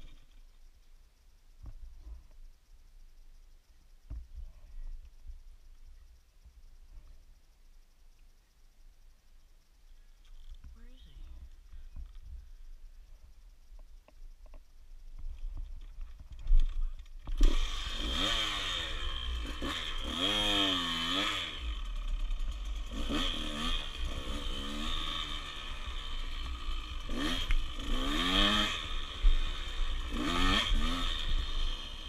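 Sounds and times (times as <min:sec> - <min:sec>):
dirt bike engine revving: 0:17.2 - 0:32.0.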